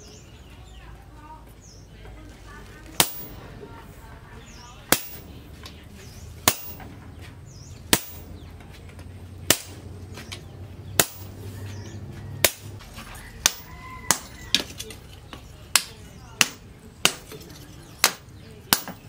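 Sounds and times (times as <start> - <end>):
hammer striking steel on anvil: 3.0 - 3.4, 4.9 - 5.3, 6.4 - 6.9, 7.9 - 8.4, 9.5 - 9.8, 11.0 - 11.4, 12.4 - 12.8, 13.4 - 14.7, 18.0 - 19.0.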